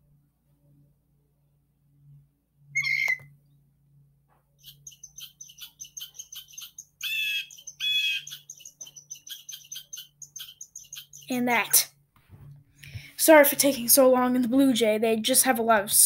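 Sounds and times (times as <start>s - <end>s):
low steady hum: 0.0s - 16.0s
blue jay calls: 2.8s - 3.3s, 4.6s - 11.8s.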